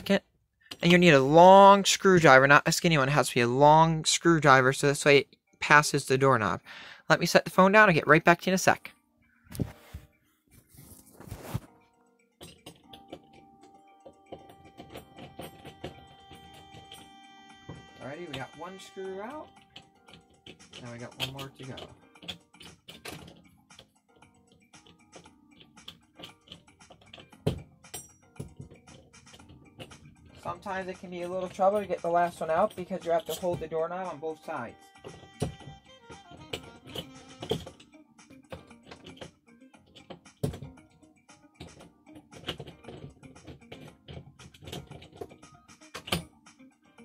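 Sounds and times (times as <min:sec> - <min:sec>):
screwdriver and door knob parts clicking: 0:12.4 - 0:17.1, 0:19.4 - 0:23.9, 0:24.5 - 0:30.5, 0:35.0 - 0:37.9, 0:38.5 - 0:40.8, 0:41.5 - 0:46.3.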